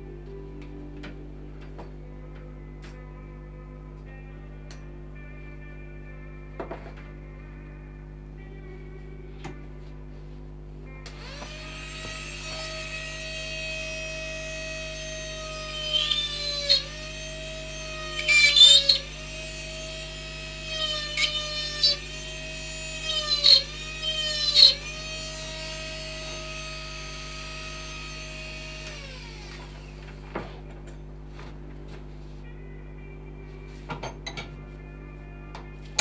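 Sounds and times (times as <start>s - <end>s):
rotary carving tool whining: 11.1s - 30.6s.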